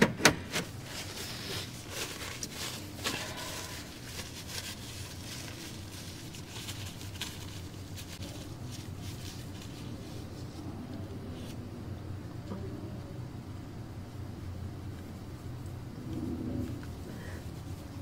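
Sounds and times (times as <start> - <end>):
low room hum: 0.0 - 18.0
paper and clothing rustling: 0.4 - 10.7.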